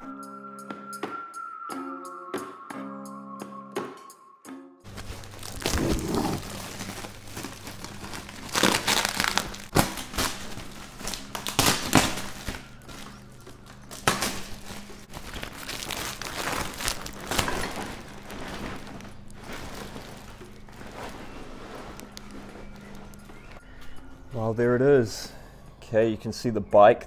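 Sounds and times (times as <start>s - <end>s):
tape and tarpaulin crinkling: 4.9s - 23.6s.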